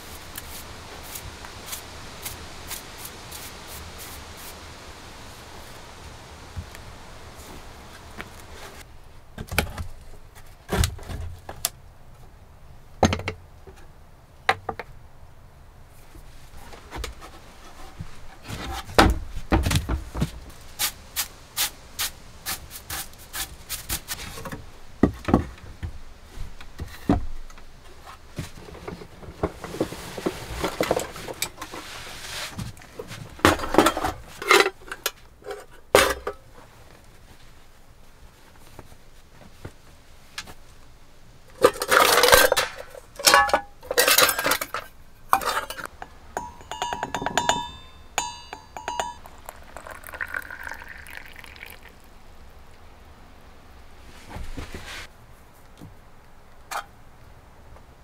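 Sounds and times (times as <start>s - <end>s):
ground coffee pouring hiss: 0.0s - 8.8s, 20.6s - 24.2s, 48.9s - 52.4s
metal pots clinking: 33.5s - 36.5s, 41.6s - 51.9s.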